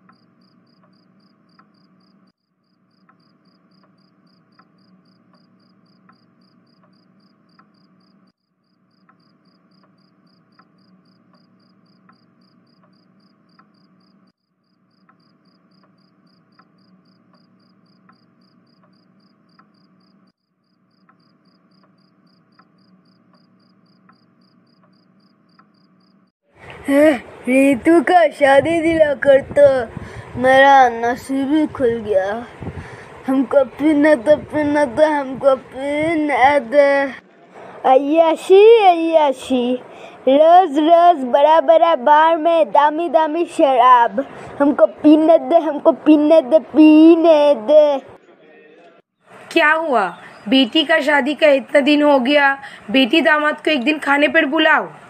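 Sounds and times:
soft ticks: 0.0 - 1.9, 4.6 - 7.9, 9.0 - 13.9, 15.0 - 19.9, 23.3 - 25.8
crickets chirping: 0.0 - 26.3.

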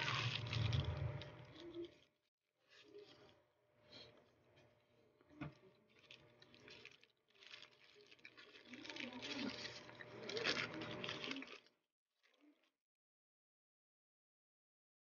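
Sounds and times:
paper wrapper rustling and crinkling: 0.0 - 2.1, 5.5 - 11.7.

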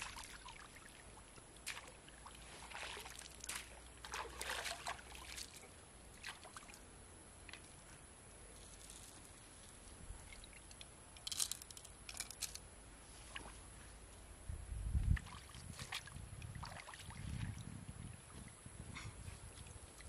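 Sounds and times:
pond water sloshing and splashing: 0.0 - 7.9, 9.7 - 12.4, 13.1 - 13.7, 15.1 - 18.6.

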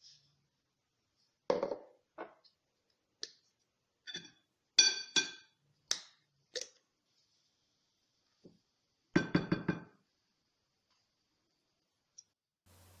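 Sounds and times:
glassware clinking: 4.0 - 5.6.

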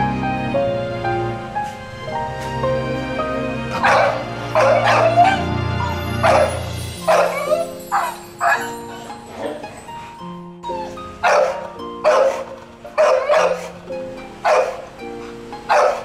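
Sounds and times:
sad background music: 0.0 - 16.0
dog yelping whines: 3.8 - 9.9, 10.6 - 13.8, 14.4 - 14.9, 15.7 - 16.0.

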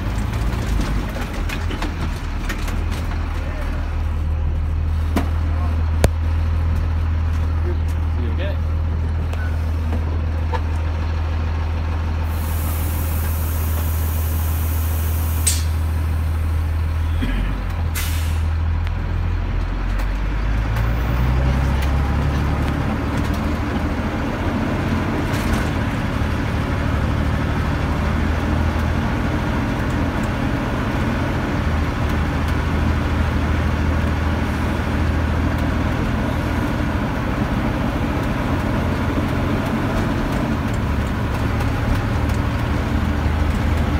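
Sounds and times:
bus engine humming: 0.0 - 43.9
air hiss: 12.3 - 15.8.

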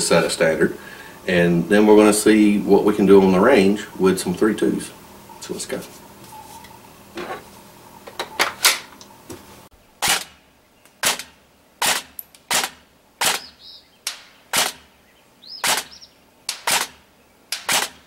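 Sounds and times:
airsoft gun shots: 10.0 - 10.4, 11.0 - 14.9, 15.6 - 18.0.

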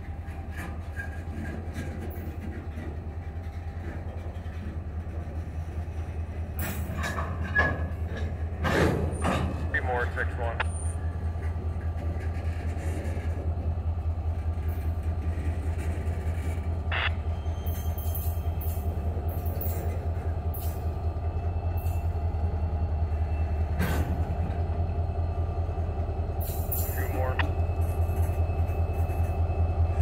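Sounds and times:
diesel locomotive engine drone: 0.0 - 30.0
freight cars rolling on rails: 0.0 - 30.0.

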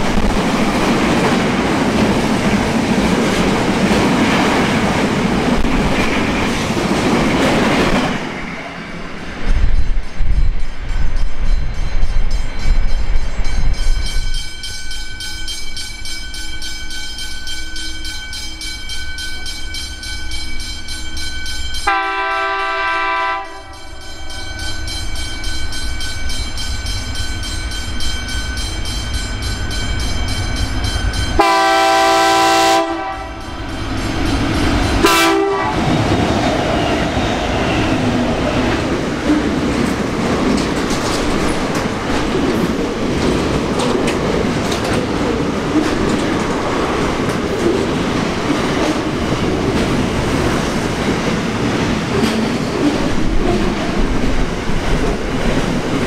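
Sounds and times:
freight train rumble: 0.0 - 56.0
locomotive horn blasts: 21.8 - 23.9, 31.4 - 33.5, 35.0 - 35.8
freight wagons clattering on rails: 38.6 - 56.0.

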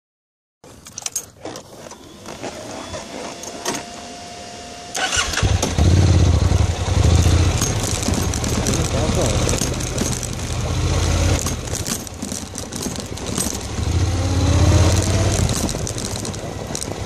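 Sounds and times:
motorcycle engine starting and running: 1.0 - 17.0
clicks and knocks: 7.2 - 13.9, 14.7 - 17.0.

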